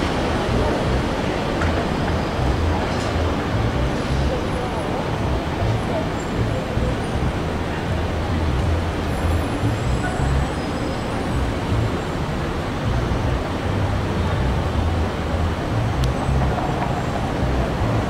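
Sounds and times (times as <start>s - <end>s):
street traffic rumble: 0.0s - 18.0s
streetcar rolling away: 0.0s - 18.0s.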